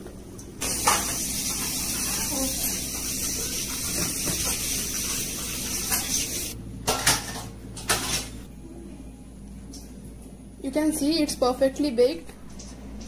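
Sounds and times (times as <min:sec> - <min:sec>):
metal cookware and dishes clinking: 0:06.8 - 0:08.4.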